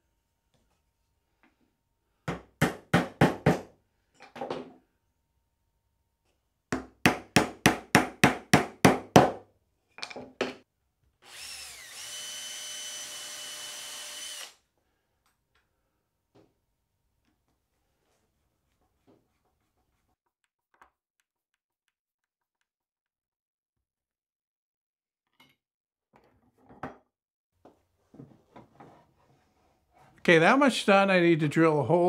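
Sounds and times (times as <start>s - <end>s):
hammer rapping on wood: 6.7s - 9.4s.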